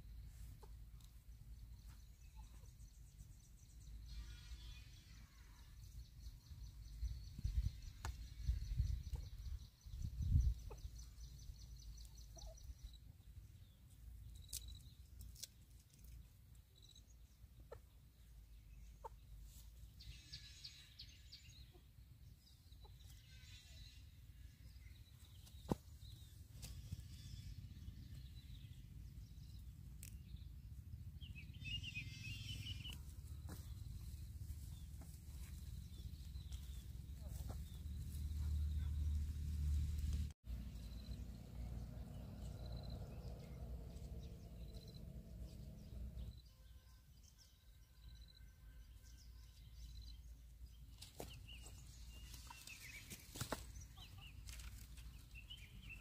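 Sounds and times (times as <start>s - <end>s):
bird calls: 3.9s - 13.0s, 31.2s - 39.3s.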